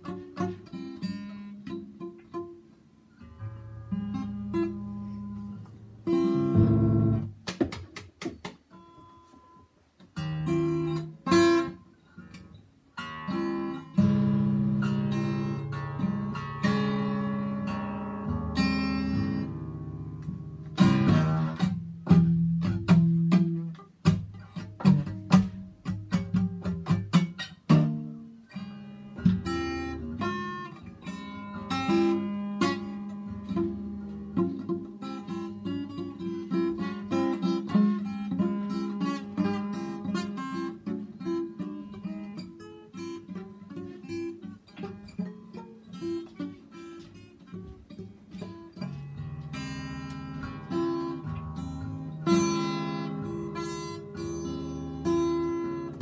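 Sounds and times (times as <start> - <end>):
acoustic guitar strumming and picking: 0.0 - 56.0.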